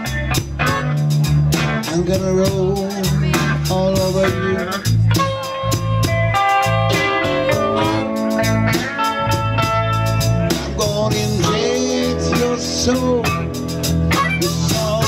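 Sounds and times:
drums: 0.0s - 15.0s
electric guitars: 0.0s - 15.0s
amplified harmonica: 5.2s - 10.6s.

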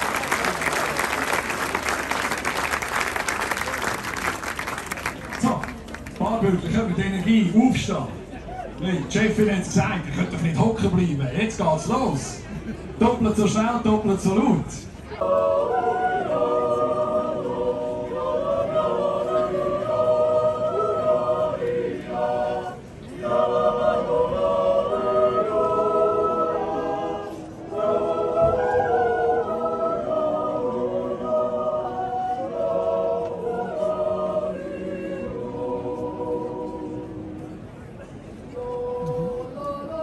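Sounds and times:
choir yodeling a cappella: 15.1s - 40.0s.

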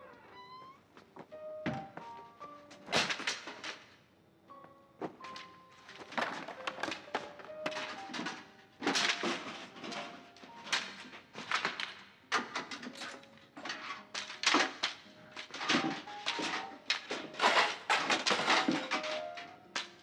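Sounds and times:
cleaning gear clattering and rustling: 5.3s - 20.0s.

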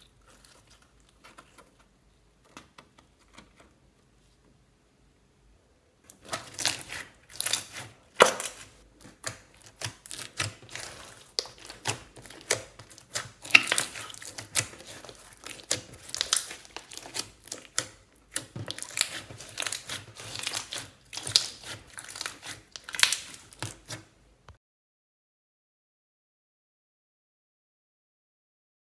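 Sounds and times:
sticky slime crackles and pops: 6.1s - 24.1s.

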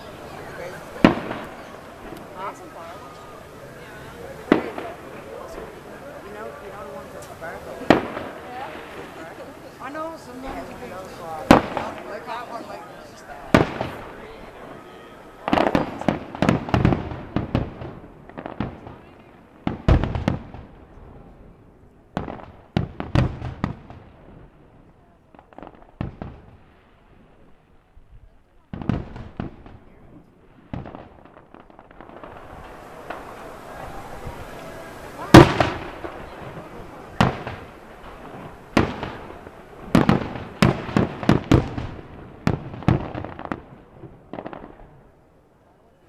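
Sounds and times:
fireworks bursting with echo: 0.0s - 46.0s
firework shells bursting: 30.6s - 44.8s.

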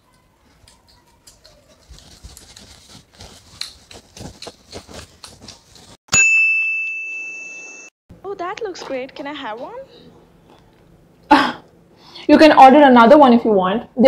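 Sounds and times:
bell-like ding: 6.1s - 7.9s.

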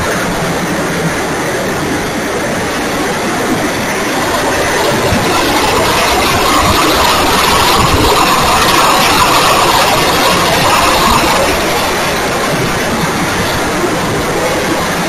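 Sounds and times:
rushing air noise: 0.0s - 15.0s
electric motor and propeller: 3.0s - 15.0s.

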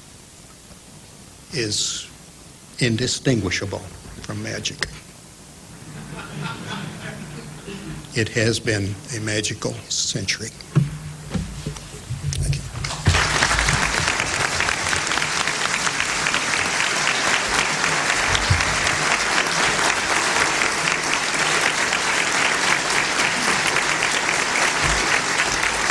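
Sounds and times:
audience applauding: 12.7s - 25.9s.

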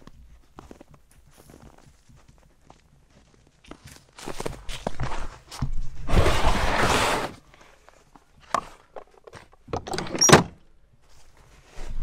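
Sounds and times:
footsteps crunching on snow: 0.0s - 7.2s.

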